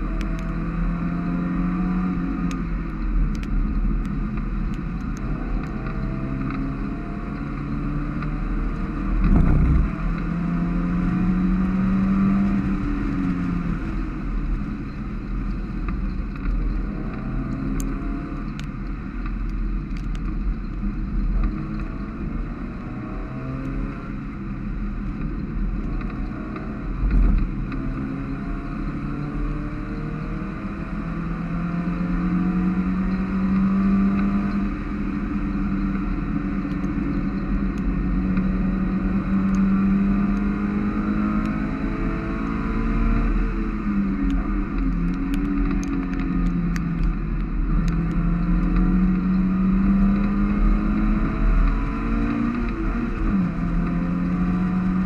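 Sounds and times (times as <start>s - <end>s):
race car engine revving: 25.8s - 55.0s.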